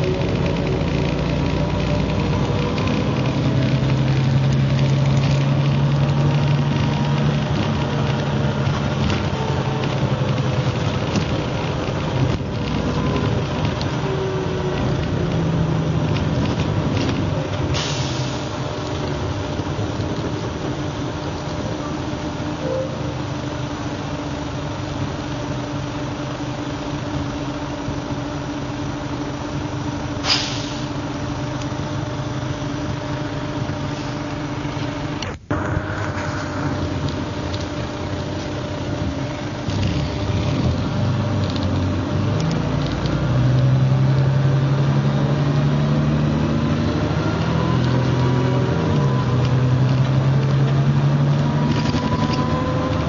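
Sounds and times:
bus diesel engine: 0.0s - 53.0s
short hiss: 30.2s - 31.0s.

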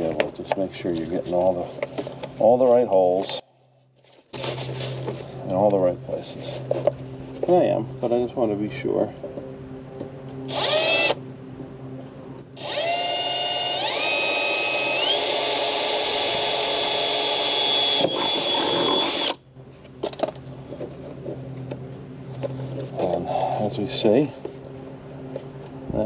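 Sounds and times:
cordless drill whining: 10.4s - 11.2s, 12.6s - 19.4s.

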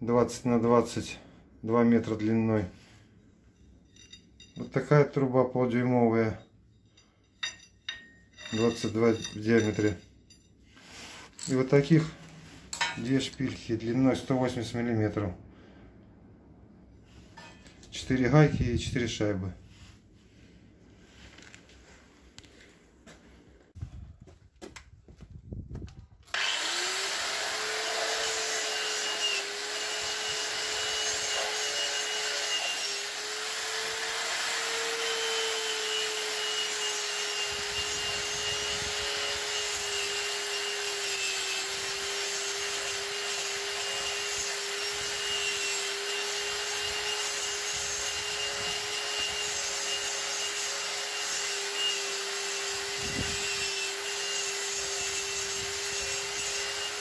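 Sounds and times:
angle grinder grinding steel: 7.4s - 10.0s, 26.3s - 57.0s.

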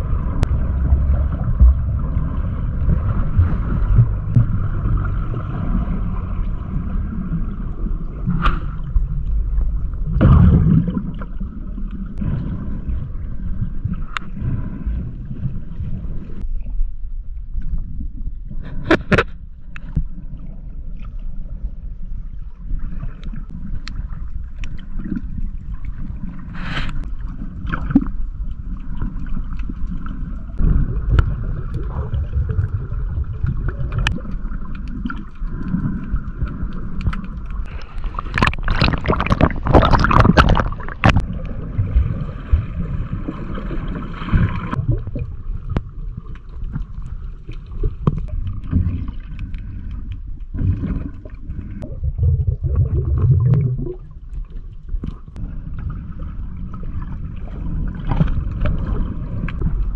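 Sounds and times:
underwater rumbling and sloshing: 0.0s - 59.9s
water splashing: 22.8s - 59.9s.

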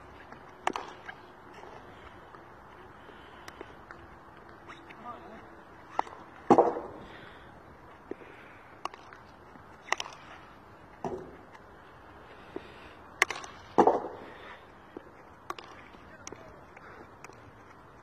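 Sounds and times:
hockey stick striking ball: 0.6s - 1.2s, 5.9s - 7.0s, 9.8s - 10.3s, 13.2s - 14.2s, 15.5s - 16.4s.

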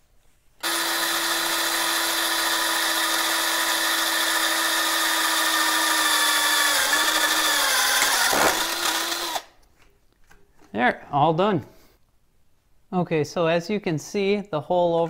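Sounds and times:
cordless drill drilling metal: 0.6s - 9.6s.

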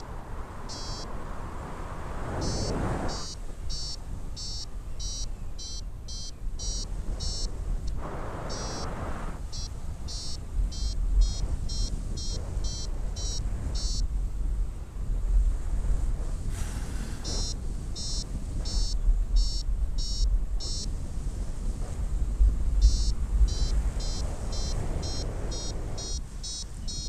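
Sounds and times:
wind on microphone: 0.0s - 27.0s
variometer beeping: 0.7s - 1.1s, 2.4s - 14.1s, 17.2s - 20.9s, 22.8s - 27.0s.

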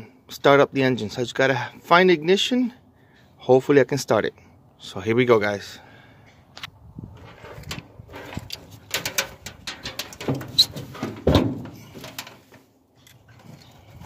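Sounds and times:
fuel pump assembly clicks and rattles: 7.5s - 14.0s.

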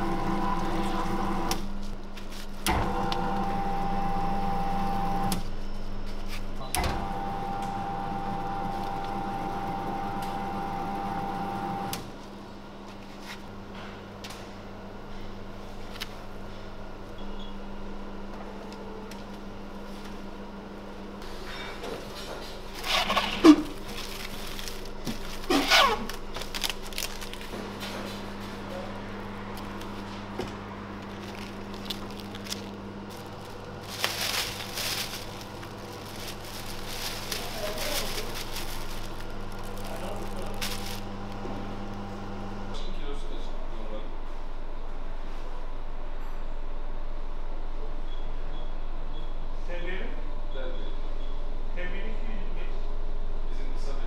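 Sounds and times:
electric meat grinder running: 0.0s - 1.4s
faint background hum: 0.0s - 54.0s
plastic bag crinkling and rustling: 22.7s - 28.4s, 29.6s - 30.1s, 31.0s - 41.5s.

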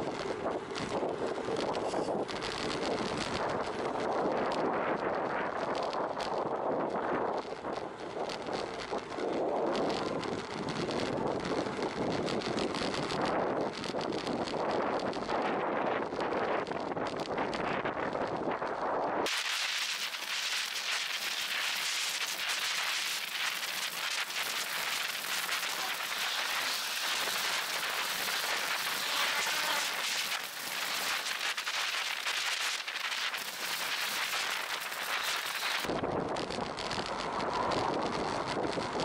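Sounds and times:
crackling wind hiss on microphone: 0.0s - 39.0s
low wind rumble: 0.0s - 39.0s.

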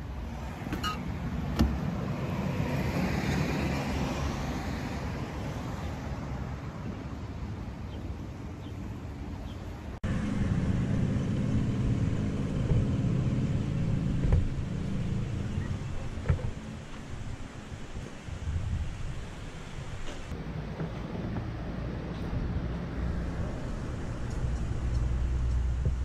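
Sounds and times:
road traffic noise: 0.0s - 26.0s
wind rumble on microphone: 10.0s - 26.0s.

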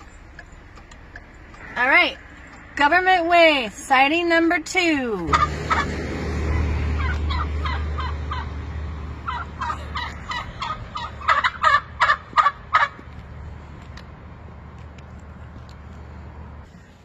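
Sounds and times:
wild turkeys calling: 0.0s - 2.7s, 5.3s - 13.1s
low steady rumble: 0.0s - 17.0s.

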